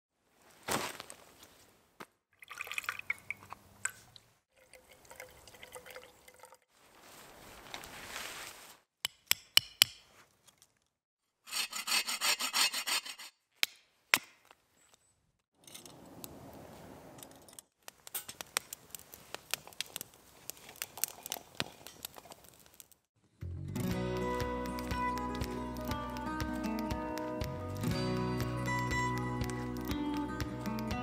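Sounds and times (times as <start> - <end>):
tarp rustling: 0.2 - 1.8, 6.7 - 8.9
hand saw cutting wood: 11.4 - 13.4
wood fire crackling: 16.0 - 23.1, 23.7 - 31.0.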